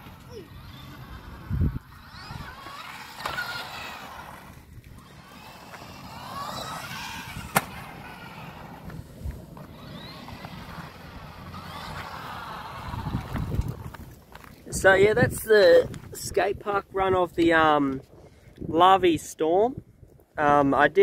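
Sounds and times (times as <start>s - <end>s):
electric motor whining: 0.0s - 14.5s
hard tyres rumbling on concrete: 0.0s - 16.3s.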